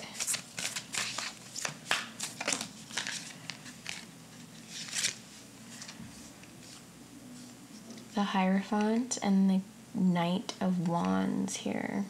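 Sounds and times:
cards being shuffled: 0.0s - 6.8s.

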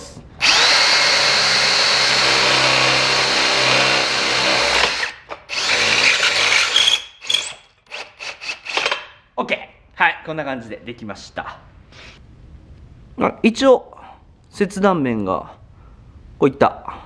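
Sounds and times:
drill motor whine: 0.4s - 8.8s
cordless drill drilling metal: 0.4s - 9.0s.

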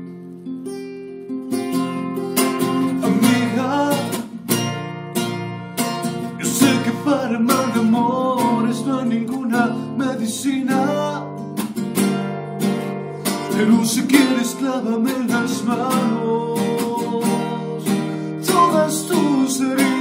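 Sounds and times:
acoustic guitar strumming: 0.0s - 20.0s
man singing: 2.8s - 4.5s, 6.3s - 11.4s, 13.3s - 20.0s.

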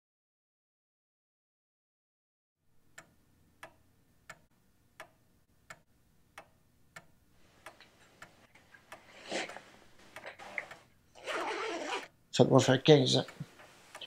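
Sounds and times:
wall clock ticking: 2.9s - 11.0s, 12.4s - 14.0s.

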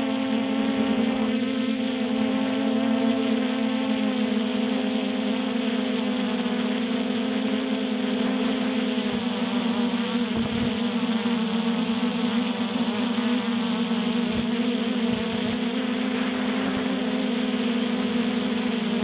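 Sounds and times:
drone propellers buzzing: 0.0s - 19.0s.

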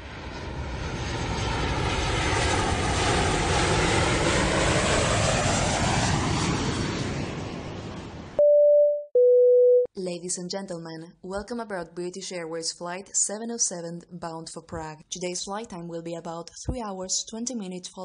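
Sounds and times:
airplane flying past: 0.0s - 8.4s.

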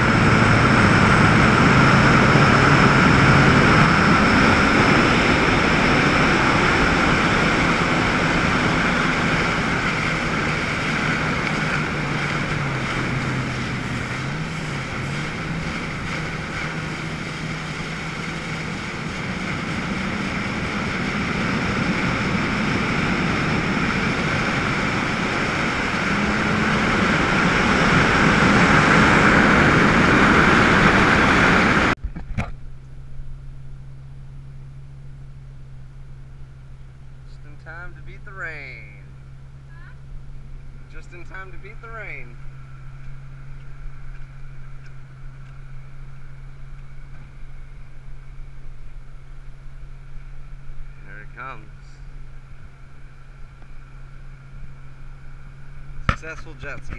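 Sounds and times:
water rushing at hull: 0.0s - 32.0s, 36.3s - 56.9s
wind on microphone: 0.0s - 32.5s
jet ski engine: 0.0s - 56.9s.

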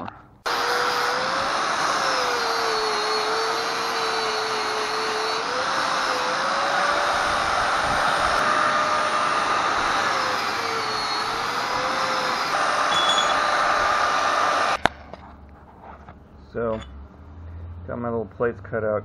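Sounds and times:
angle grinder grinding steel: 0.5s - 14.8s.

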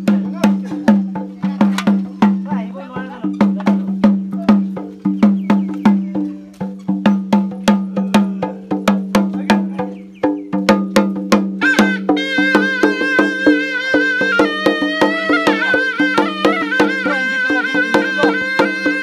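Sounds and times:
drum played in fast rhythm: 0.0s - 19.0s
pipe holding high note: 11.6s - 19.0s.

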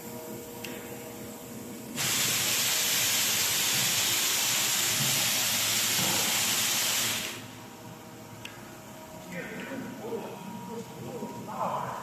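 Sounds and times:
loud steady hiss: 2.0s - 7.6s.

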